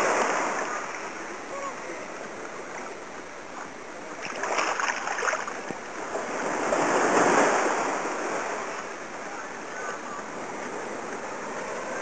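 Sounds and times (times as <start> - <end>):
sea water splashing in shallows: 0.0 - 1.3, 4.1 - 9.0.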